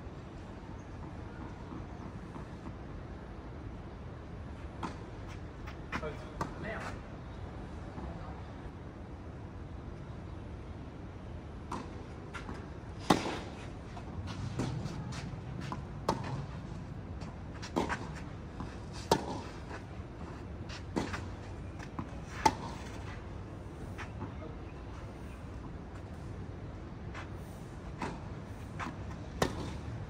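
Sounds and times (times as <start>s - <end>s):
racket striking ball: 14.3s - 16.6s, 19.0s - 19.6s, 29.4s - 29.8s.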